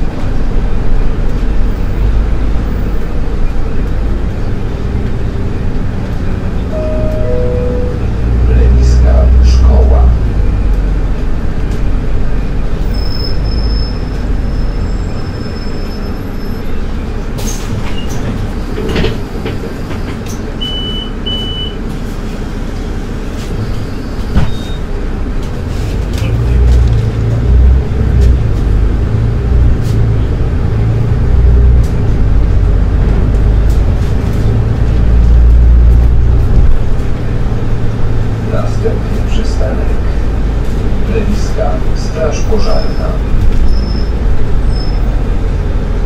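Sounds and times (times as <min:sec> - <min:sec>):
bus engine and road noise: 0:00.0 - 0:46.0
short high beeps: 0:06.7 - 0:08.2.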